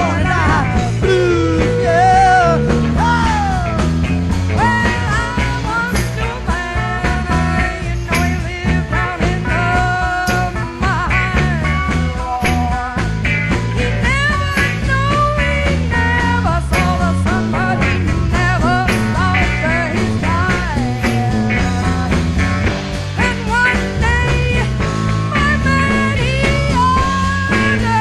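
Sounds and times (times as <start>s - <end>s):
bass line: 0.0s - 28.0s
drums: 0.0s - 28.0s
electric lead guitar: 0.0s - 28.0s.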